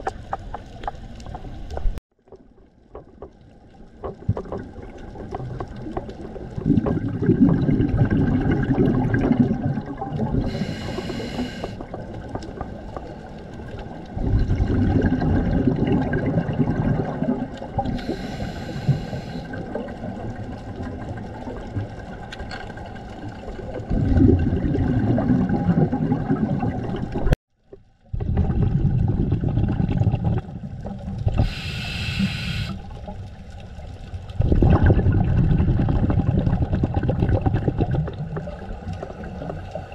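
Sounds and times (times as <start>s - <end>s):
exhaled bubbles underwater: 0.0s - 27.4s, 28.0s - 39.9s
regulator inhale hiss: 10.4s - 11.8s, 18.0s - 19.6s, 31.4s - 32.9s.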